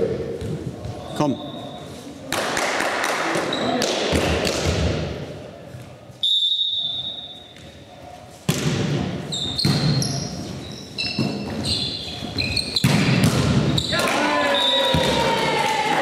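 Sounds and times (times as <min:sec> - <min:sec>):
sneakers squeaking on floor: 0:00.4 - 0:02.2, 0:03.4 - 0:03.9, 0:06.1 - 0:08.4, 0:09.2 - 0:15.0
volleyball being hit: 0:08.5 - 0:10.0, 0:12.8 - 0:14.3
players' voices: 0:13.8 - 0:16.0.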